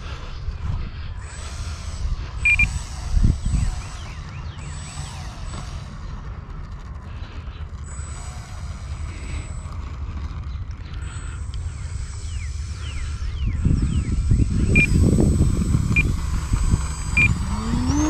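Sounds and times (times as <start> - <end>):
model plane electric motor: 0.0 - 18.0
birds chirping: 1.0 - 6.1, 7.1 - 18.0
wind rumble on microphone: 2.0 - 4.4, 12.6 - 18.0
short high beep: 2.4 - 2.7.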